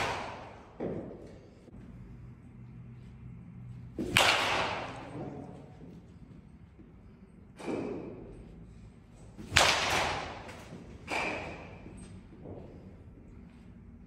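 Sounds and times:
baseball bat cracking ball: 0.0s - 1.4s, 3.9s - 5.4s, 9.4s - 11.8s.

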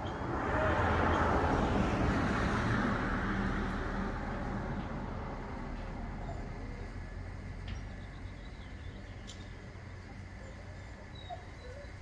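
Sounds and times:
car driving past: 0.0s - 7.6s.

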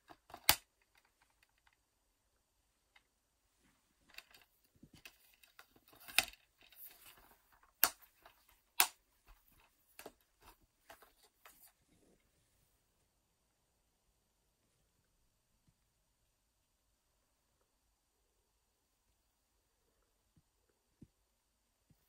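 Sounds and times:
plastic cases clicking and rattling: 0.0s - 1.8s, 4.1s - 11.7s
sharp plastic snaps: 0.0s - 1.8s, 4.1s - 10.2s.

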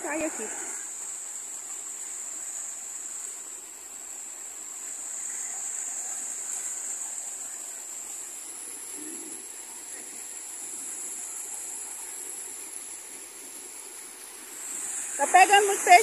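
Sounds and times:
high-pitched hiss: 0.0s - 16.0s
waterfall rushing over rocks: 0.0s - 16.0s.

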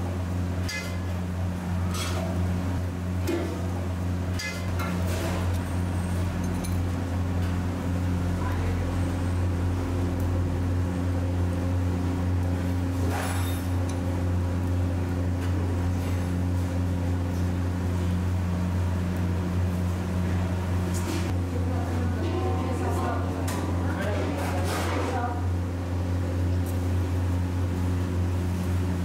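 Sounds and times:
low mechanical hum: 0.0s - 29.0s.

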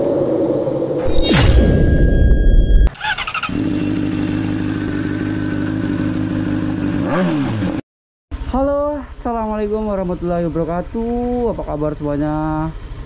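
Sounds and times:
motorcycle engine running: 2.9s - 7.8s, 8.4s - 13.0s.

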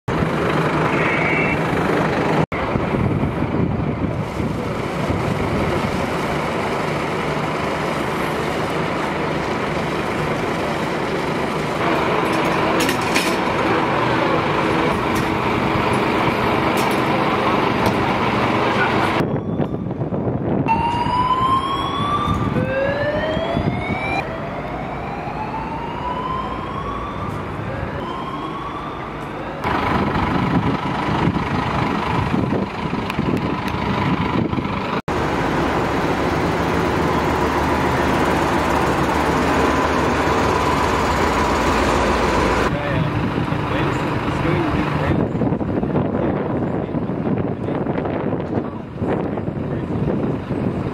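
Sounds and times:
fire engines rumbling: 0.1s - 50.9s
siren whooping: 19.2s - 29.7s.

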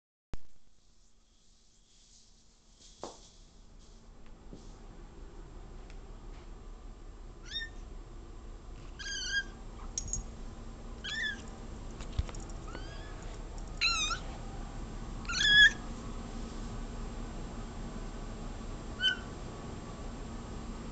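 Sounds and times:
cat meowing: 7.4s - 7.8s, 11.0s - 11.4s, 12.7s - 13.2s, 13.8s - 14.2s, 15.3s - 15.8s.

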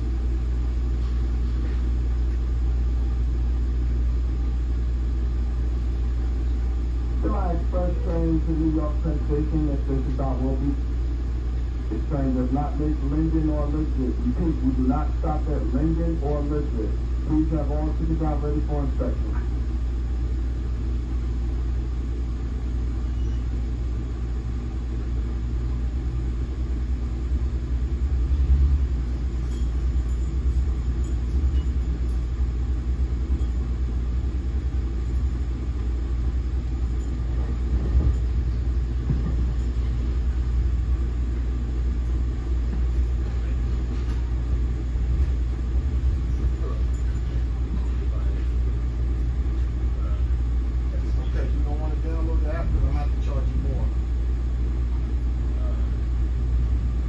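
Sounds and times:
train wheels rumbling on rails: 27.7s - 35.9s, 36.6s - 40.5s
train carriage jolt: 36.8s - 40.4s.

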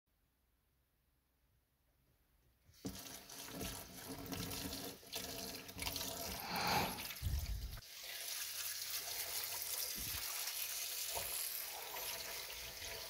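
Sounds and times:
tap water splashing into plastic tub: 2.8s - 6.1s, 9.8s - 10.4s, 11.0s - 11.5s.

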